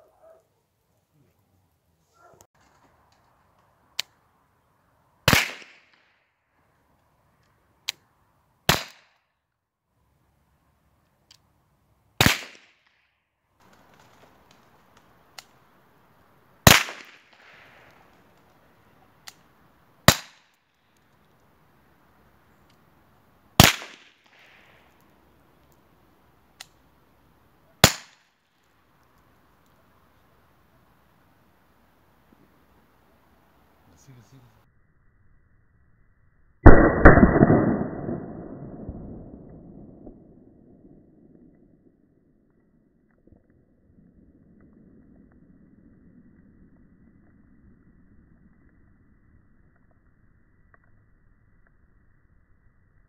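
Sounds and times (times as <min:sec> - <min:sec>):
air pistol crack: 0:05.3 - 0:06.1, 0:08.7 - 0:09.2, 0:12.2 - 0:13.0, 0:16.6 - 0:18.4, 0:19.2 - 0:21.1, 0:23.6 - 0:25.8, 0:27.8 - 0:28.4, 0:36.7 - 0:40.2
revolver firing: 0:16.7 - 0:17.5, 0:36.6 - 0:41.4
loud exploding bang: 0:36.7 - 0:40.4.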